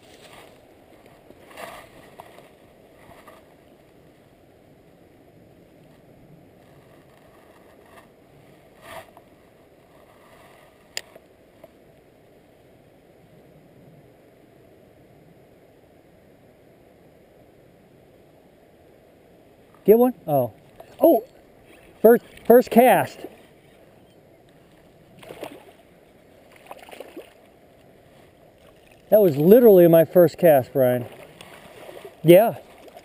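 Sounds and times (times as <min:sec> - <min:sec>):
soft handling noises: 0:00.0 - 0:04.0.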